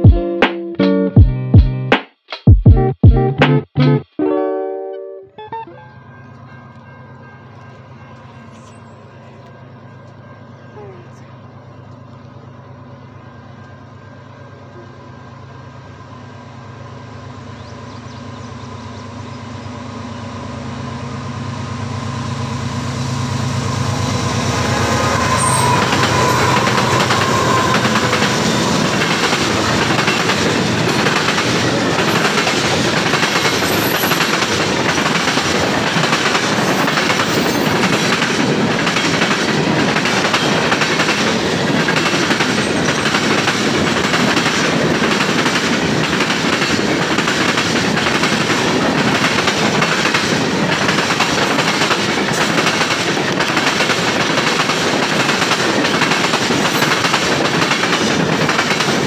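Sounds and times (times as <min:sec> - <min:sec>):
locomotive engine drone: 0:05.4 - 0:52.1
train wheels clattering over rail joints: 0:25.2 - 0:59.0.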